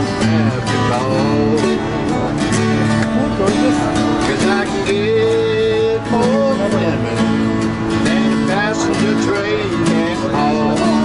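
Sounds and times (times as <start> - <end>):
country music with acoustic guitar: 0.0 - 11.0.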